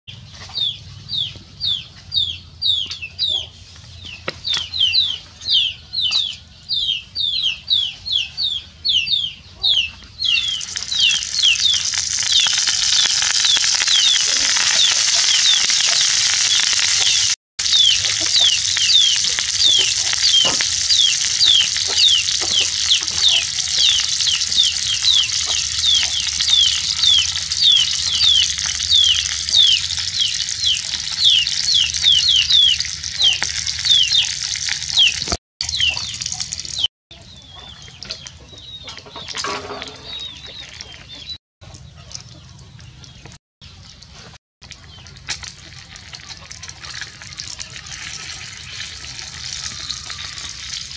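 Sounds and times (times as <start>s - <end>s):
fish sizzling in hot oil: 10.4s - 36.8s, 44.6s - 50.9s.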